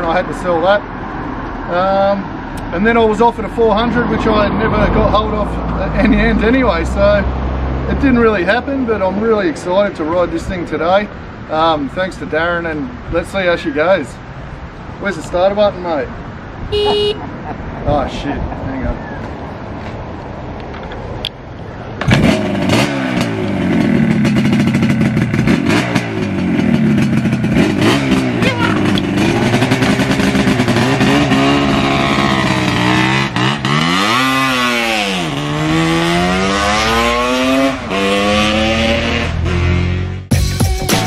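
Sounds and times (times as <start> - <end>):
motorcycle accelerating through gears: 22.0 - 40.3
two-stroke motorcycle engine revving: 22.0 - 40.3.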